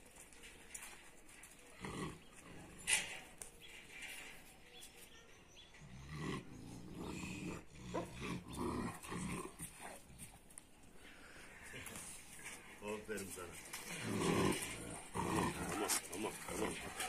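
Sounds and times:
dogs growling low: 0:01.6 - 0:03.2, 0:05.8 - 0:10.4, 0:13.8 - 0:17.0.

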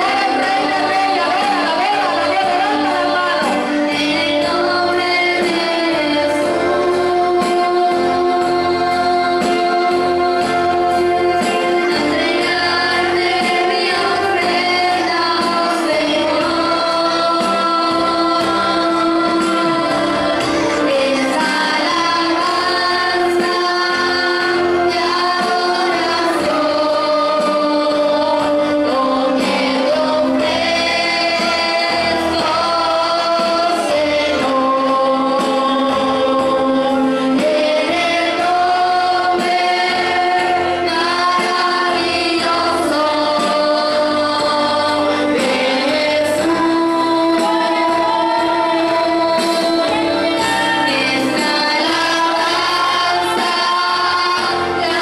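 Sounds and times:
choir singing praise song: 0:00.0 - 0:55.0.

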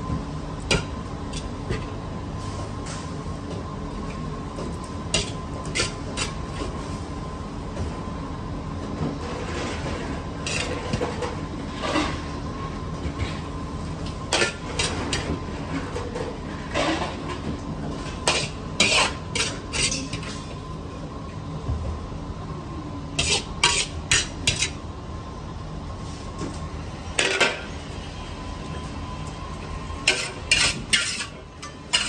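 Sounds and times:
kitchen hum with faint tone: 0:00.0 - 0:32.0
utensils clinking on plates: 0:18.1 - 0:20.5.

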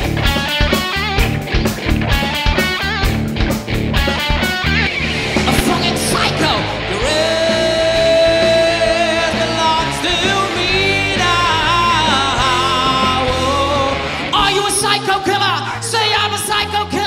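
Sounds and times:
rock band playing: 0:00.0 - 0:17.0
person singing: 0:05.4 - 0:16.6.

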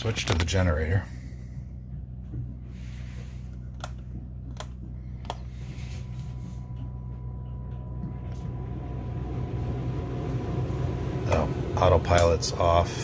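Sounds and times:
diesel generator humming: 0:00.0 - 0:13.0.

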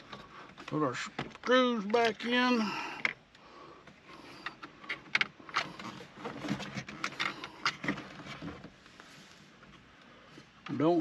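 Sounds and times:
hard plastic clicks and scrapes: 0:04.3 - 0:08.8.

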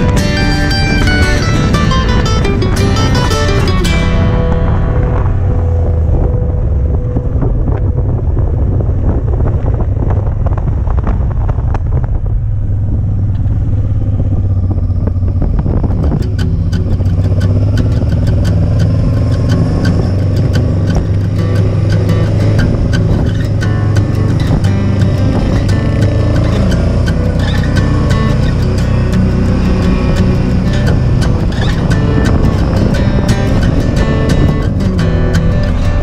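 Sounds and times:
motorcycle engine running: 0:00.0 - 0:36.0
road and wind noise: 0:00.0 - 0:36.0
sharp clicks: 0:15.9 - 0:36.0.

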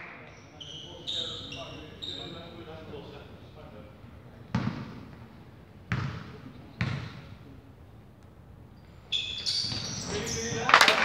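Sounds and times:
basketball bouncing on hall floor: 0:04.5 - 0:05.2, 0:05.9 - 0:07.3
high squeaking: 0:08.9 - 0:10.8.

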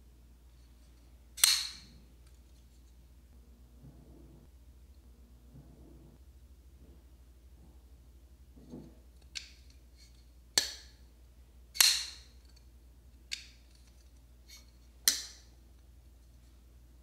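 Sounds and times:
folding knife blade clicking: 0:01.4 - 0:01.9, 0:11.8 - 0:12.3.

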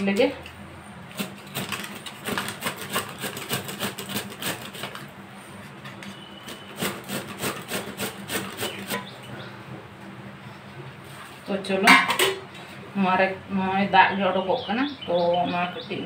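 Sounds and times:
gourd grated on plastic grater: 0:01.2 - 0:05.0.

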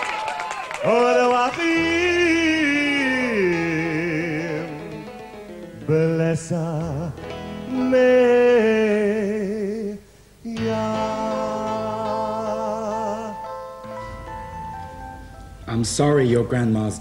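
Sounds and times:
person singing slow song: 0:00.8 - 0:13.9.

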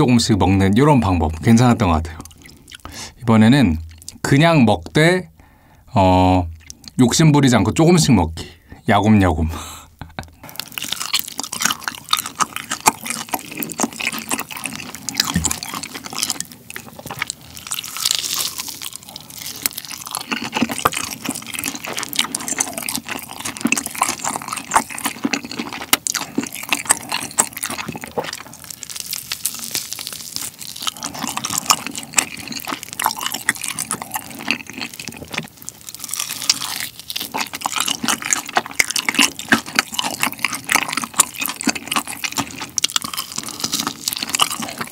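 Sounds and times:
wet sticky chewing: 0:01.1 - 0:04.2, 0:06.5 - 0:07.0, 0:10.3 - 0:44.9
crunching fried coating: 0:10.4 - 0:44.9.

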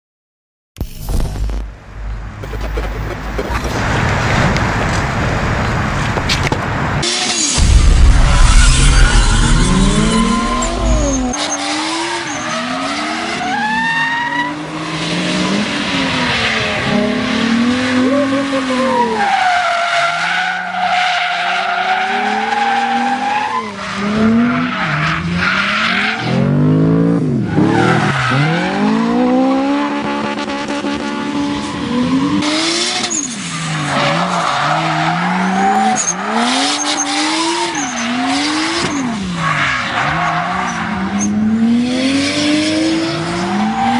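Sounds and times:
race car engine revving: 0:07.0 - 0:18.9.

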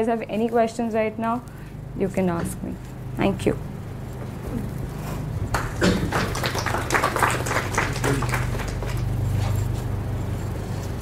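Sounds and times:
audience applauding: 0:05.5 - 0:09.2.

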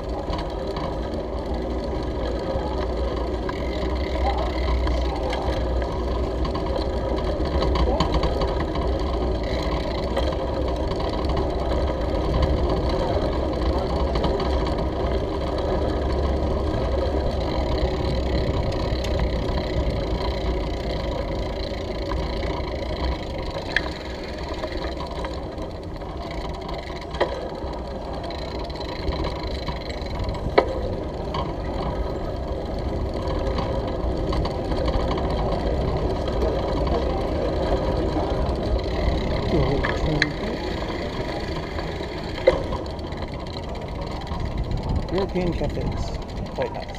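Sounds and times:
bicycle rattling over bricks: 0:00.0 - 0:46.9.

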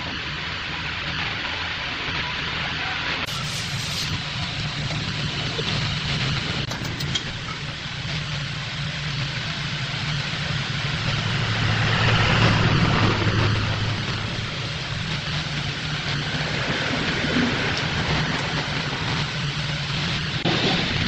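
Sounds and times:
turning tool cutting wood: 0:03.3 - 0:04.2.

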